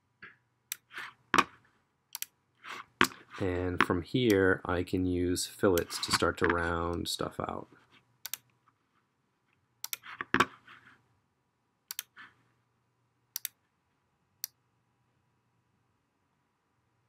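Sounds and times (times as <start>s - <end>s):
computer mouse clicking: 2.1s - 2.3s, 8.2s - 8.6s, 9.8s - 10.4s, 11.9s - 12.2s, 13.4s - 13.6s.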